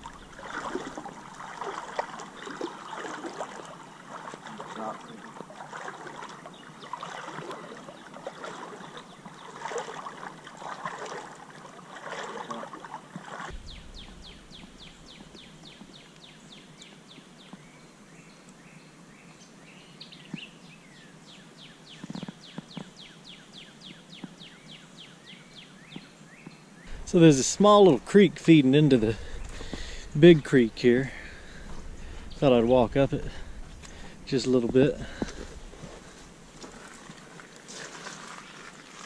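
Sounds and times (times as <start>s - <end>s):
footsteps splashing through water: 0.0s - 13.6s, 27.4s - 39.0s.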